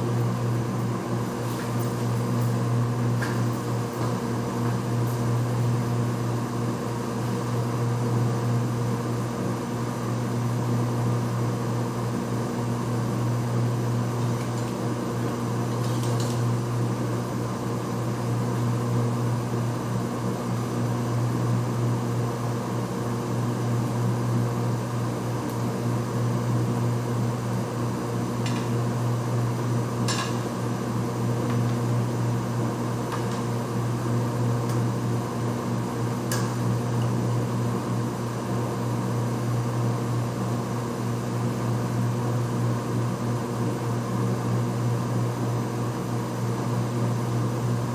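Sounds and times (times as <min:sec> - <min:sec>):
low mechanical hum: 0:00.0 - 0:47.9.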